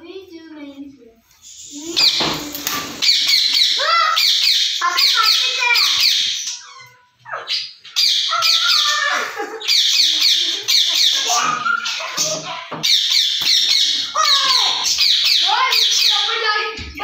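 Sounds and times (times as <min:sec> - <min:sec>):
parrot screeching: 0:01.6 - 0:16.4
wing flapping: 0:01.7 - 0:03.7.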